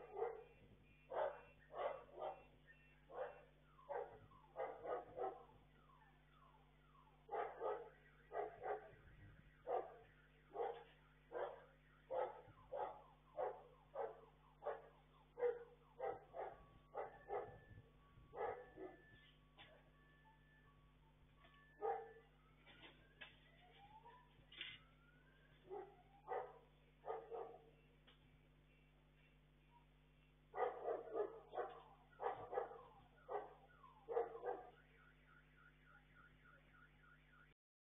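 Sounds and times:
dog barking: 0:00.0 - 0:02.5, 0:03.1 - 0:05.5, 0:07.3 - 0:09.0, 0:09.6 - 0:17.6, 0:18.3 - 0:19.0, 0:21.8 - 0:22.2, 0:25.6 - 0:27.7, 0:30.6 - 0:34.8.

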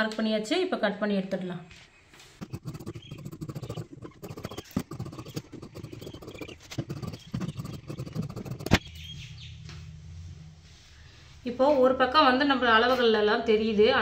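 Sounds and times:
scissors cutting fabric: 0:02.4 - 0:08.8.

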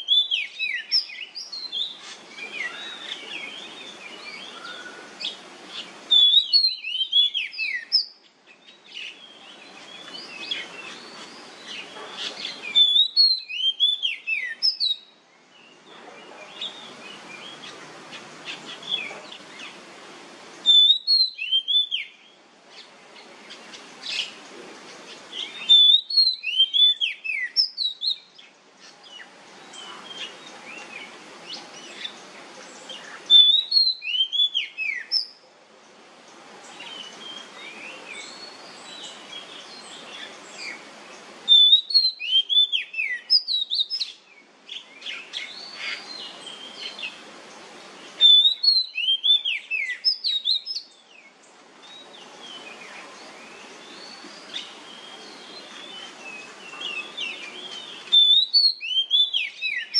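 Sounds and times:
steady background hiss: 0:00.0 - 0:59.9
bird singing falling whistles: 0:06.1 - 0:08.1, 0:12.7 - 0:15.1, 0:20.6 - 0:22.2, 0:25.6 - 0:28.2, 0:33.3 - 0:35.3, 0:41.5 - 0:44.1, 0:48.2 - 0:50.8, 0:56.8 - 0:59.9.

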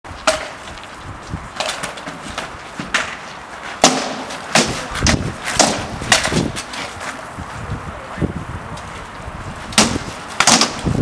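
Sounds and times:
swords striking shields and armour: 0:00.2 - 0:00.6, 0:03.8 - 0:06.8, 0:09.7 - 0:10.9.

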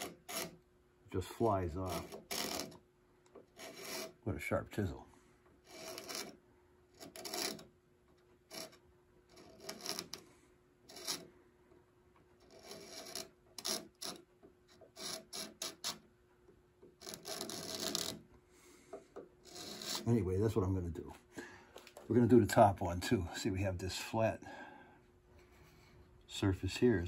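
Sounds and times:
chisel scraping wood: 0:00.0 - 0:00.6, 0:01.2 - 0:04.9, 0:05.6 - 0:11.4, 0:12.2 - 0:16.1, 0:16.8 - 0:20.6.

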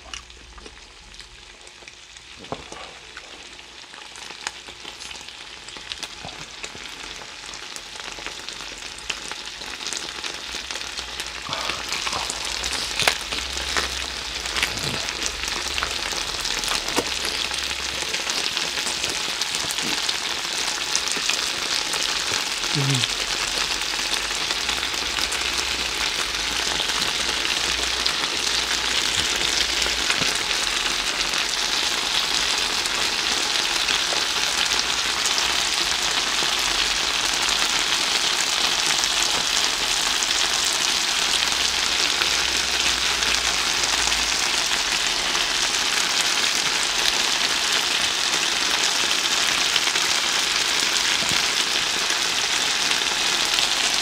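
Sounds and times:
meat sizzling on grill plate: 0:03.6 - 0:54.0.

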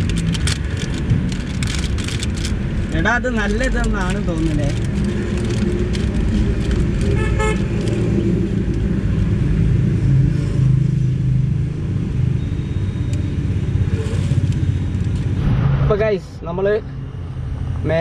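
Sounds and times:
vehicle horn toot: 0:07.2 - 0:07.7
low rumble: 0:14.6 - 0:17.8.

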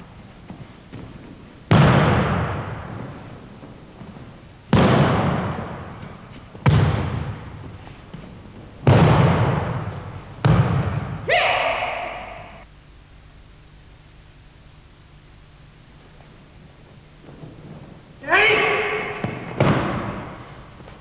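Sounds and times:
heavy thuds on gym mats: 0:00.0 - 0:11.3, 0:17.2 - 0:21.0
person shouting: 0:11.2 - 0:12.6, 0:18.2 - 0:19.5.

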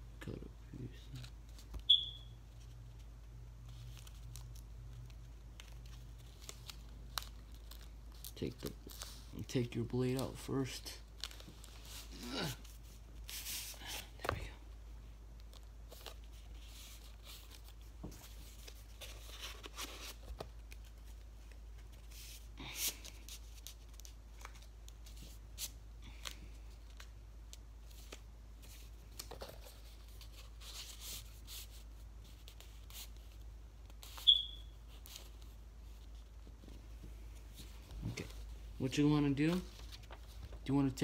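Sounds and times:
sharp high squeak: 0:01.9 - 0:02.3, 0:34.2 - 0:34.8
paper rustling and crinkling: 0:03.6 - 0:14.6, 0:15.4 - 0:34.2, 0:39.4 - 0:40.7.

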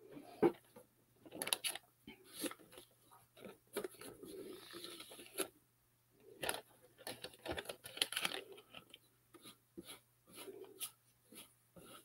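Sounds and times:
paper crackles: 0:06.4 - 0:09.0
paper rustling: 0:06.4 - 0:12.0.

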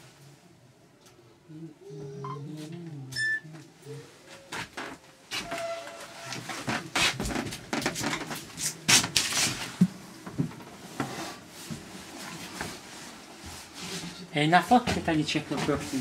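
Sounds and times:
footsteps on steel floor plates: 0:06.3 - 0:10.7.

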